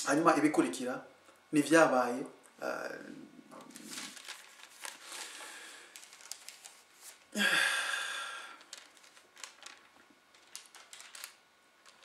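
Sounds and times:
man sighing: 0:07.3 - 0:08.6.

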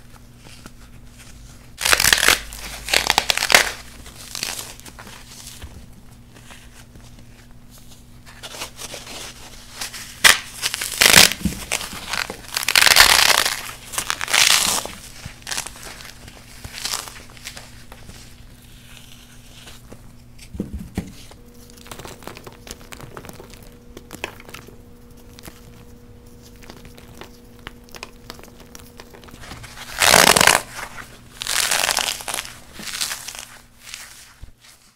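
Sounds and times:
foam crunching by hand: 0:01.8 - 0:05.6, 0:08.5 - 0:17.9, 0:21.2 - 0:34.9.

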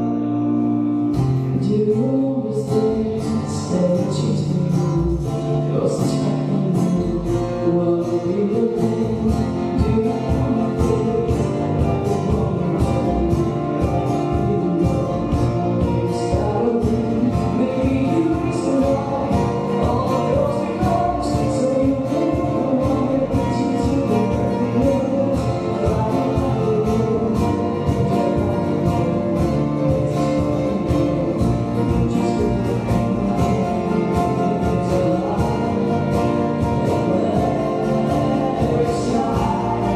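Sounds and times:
acoustic guitar: 0:00.0 - 0:39.9
double bass: 0:00.0 - 0:39.9
keyboard: 0:00.0 - 0:39.9
woman singing: 0:01.5 - 0:39.9
drum kit: 0:08.8 - 0:39.9.

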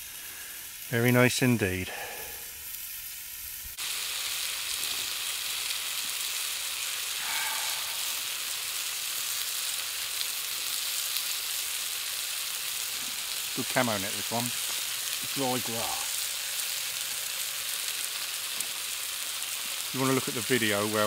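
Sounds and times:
food sizzling in a frying pan: 0:00.0 - 0:21.0.

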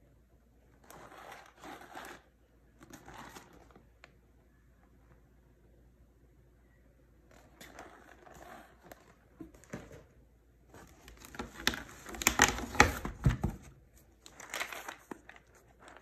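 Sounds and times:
cardboard and packaging rustling: 0:07.4 - 0:16.0.

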